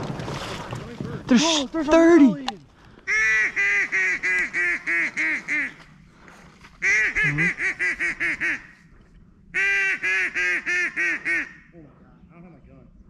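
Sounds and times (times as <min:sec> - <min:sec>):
duck call quacks: 0:03.1 - 0:05.8, 0:06.8 - 0:08.7, 0:09.6 - 0:11.7.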